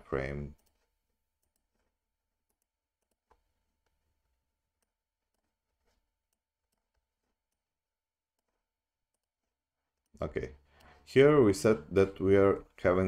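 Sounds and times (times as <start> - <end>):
computer mouse clicks: 0.5 - 4.0.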